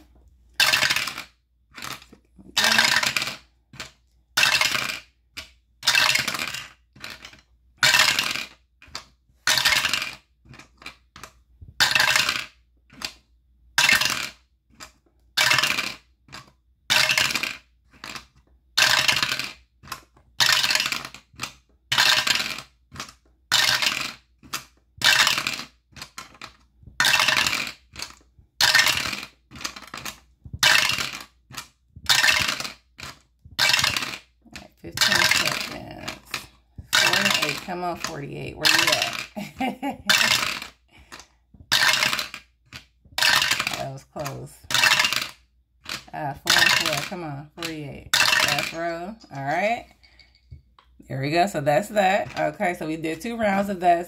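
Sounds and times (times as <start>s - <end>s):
dice clattering in a dice roller: 0.6s - 48.8s.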